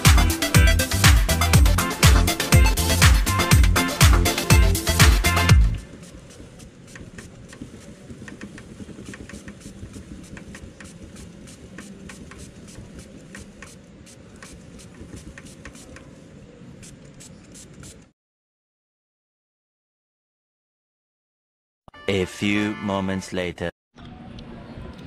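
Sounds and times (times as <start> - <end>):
spray bottle squirts: 5.8 - 16.0, 16.8 - 18.1.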